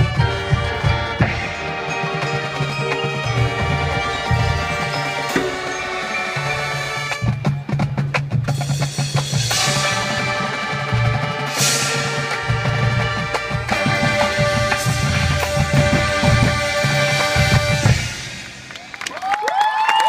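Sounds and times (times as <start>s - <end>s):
sharp percussion hits: 0.0s - 19.0s
marching band playing: 0.0s - 19.4s.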